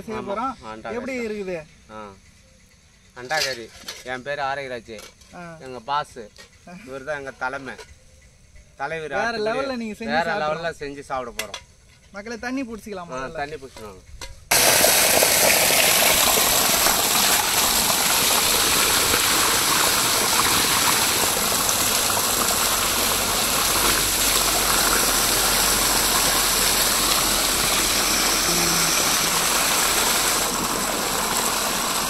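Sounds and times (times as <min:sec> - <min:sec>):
water gushing from a hose: 0:14.5 - 0:32.0
water splashing into a pot: 0:14.5 - 0:32.0.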